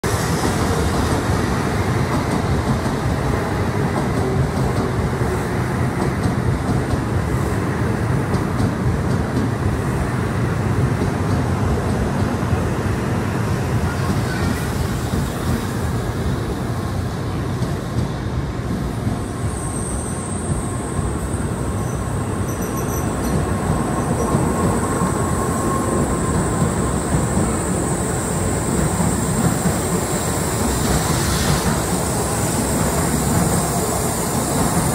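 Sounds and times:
high steady train whine: 0.0s - 34.9s
train rumbling on track: 0.0s - 34.9s.

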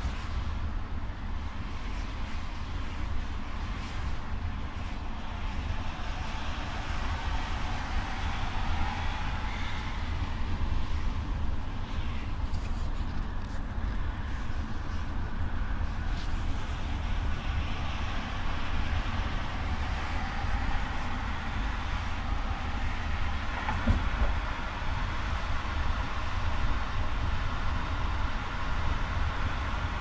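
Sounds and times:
engine and tyre rumble: 0.0s - 30.0s
road and wind noise hiss: 0.0s - 30.0s
brief knock: 23.6s - 24.3s.

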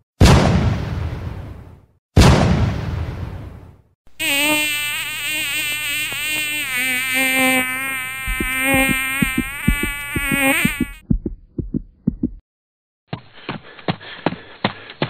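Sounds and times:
fly buzzing: 4.2s - 11.0s
low thumps: 8.2s - 12.4s
sharp taps: 8.3s - 12.4s.

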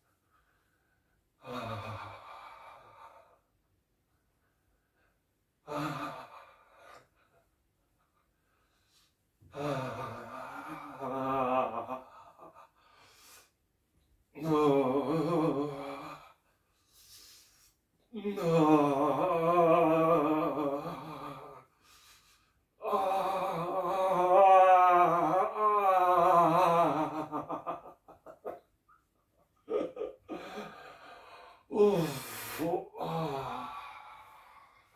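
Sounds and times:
man breathing: 12.1s - 13.6s, 15.7s - 18.0s, 20.8s - 22.8s, 29.6s - 34.9s.

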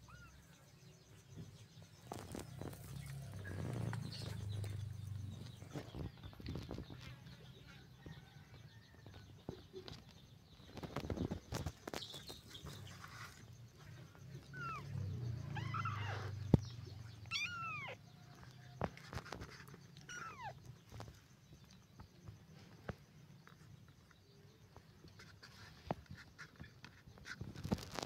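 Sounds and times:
kittens mewing: 14.4s - 18.5s, 19.6s - 20.7s.

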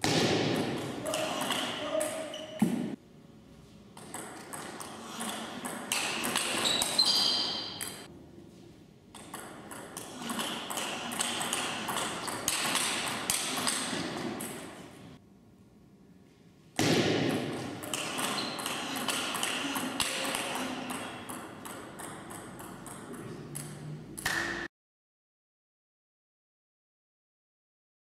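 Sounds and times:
ball bouncing on table: 0.0s - 3.0s, 4.0s - 8.1s, 9.2s - 14.7s, 16.8s - 24.7s
ping pong ball on rackets: 4.0s - 8.1s, 9.1s - 14.7s, 16.8s - 24.7s.

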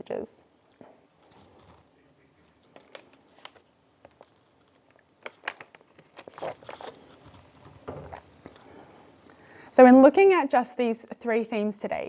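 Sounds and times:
rustling: 1.1s - 8.8s.

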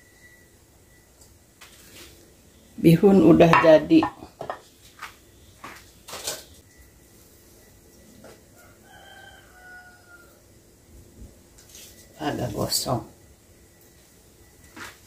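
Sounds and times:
rooster crowing faintly: 8.0s - 10.6s.

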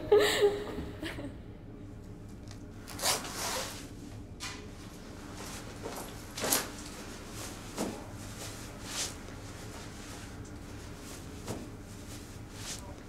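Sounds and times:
clothing fabric swishes: 5.3s - 13.0s.

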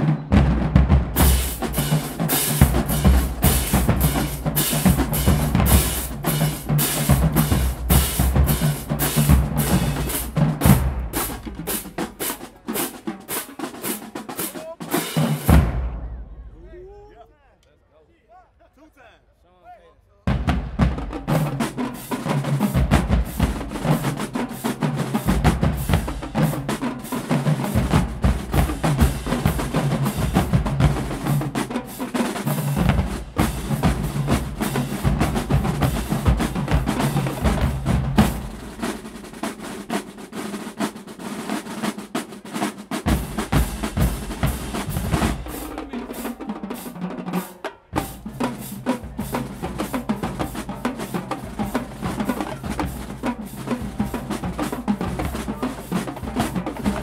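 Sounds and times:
bass drums: 0.0s - 12.4s, 20.3s - 21.7s, 22.5s - 24.3s, 25.0s - 26.8s, 27.5s - 31.6s, 32.6s - 39.1s, 43.0s - 46.0s
snare drums: 0.0s - 16.6s, 20.2s - 57.0s
tenor drums: 0.0s - 17.2s, 20.2s - 57.0s.

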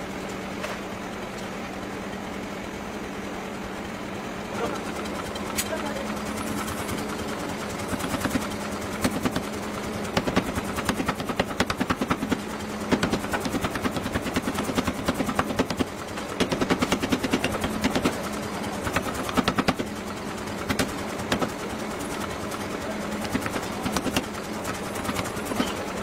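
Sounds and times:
machine humming: 0.9s - 26.0s
power hammer striking metal: 7.9s - 9.5s, 10.1s - 18.2s, 18.8s - 20.0s, 20.6s - 21.6s, 23.2s - 25.8s.

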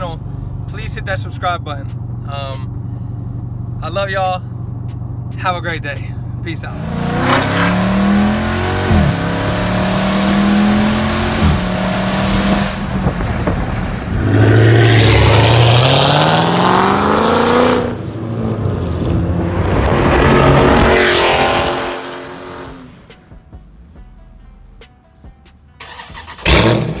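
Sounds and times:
car engine accelerating hard: 6.6s - 23.0s.

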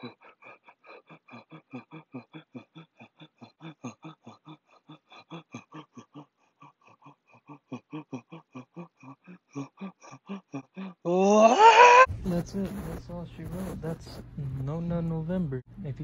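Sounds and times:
person moaning grunts: 0.0s - 12.1s.

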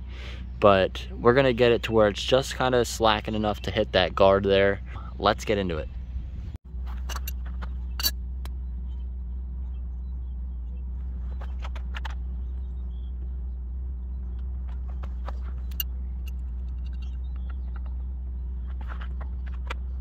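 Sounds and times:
low rumble: 0.0s - 20.0s
metal tools clinking on asphalt: 6.9s - 8.2s, 14.7s - 18.0s.

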